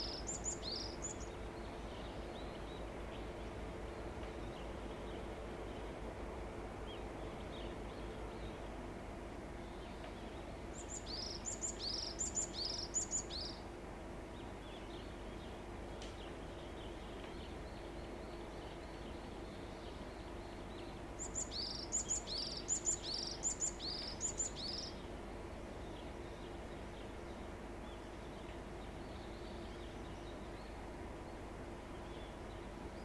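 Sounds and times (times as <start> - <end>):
bird singing: 0.0 - 5.9, 9.6 - 13.6, 16.2 - 25.1, 25.8 - 33.0.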